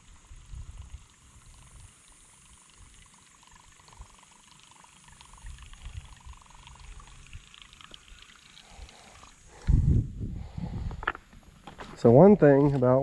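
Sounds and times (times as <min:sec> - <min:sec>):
wind rumbling on microphone: 0:00.0 - 0:01.9, 0:05.4 - 0:07.5, 0:08.8 - 0:12.8
creek water running faintly: 0:00.0 - 0:13.0.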